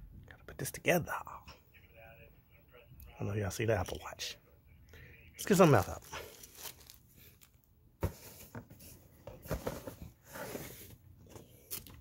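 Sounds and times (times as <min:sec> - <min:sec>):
cardboard packaging rustling: 0:05.4 - 0:12.0.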